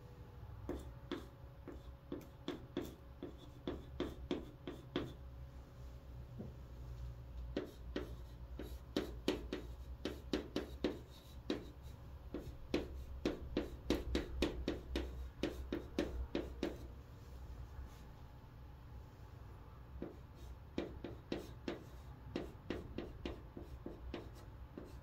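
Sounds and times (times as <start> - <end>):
steady low hum: 0.0 - 25.0
chalk tapping and scratching: 0.7 - 5.2, 7.5 - 16.9, 20.0 - 25.0.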